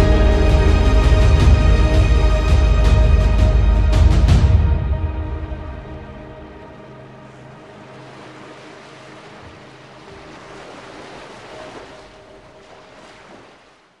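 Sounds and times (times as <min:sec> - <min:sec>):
background music: 0:00.0 - 0:13.5
sea surf washing in: 0:06.4 - 0:14.0.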